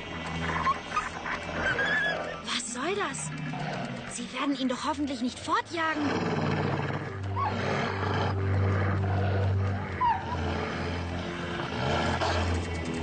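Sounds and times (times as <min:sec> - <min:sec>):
low background music: 0:00.0 - 0:13.0
wolves snarling and growling: 0:00.0 - 0:13.0
wolf yelps: 0:00.4 - 0:02.5, 0:07.4 - 0:08.0, 0:09.9 - 0:10.5.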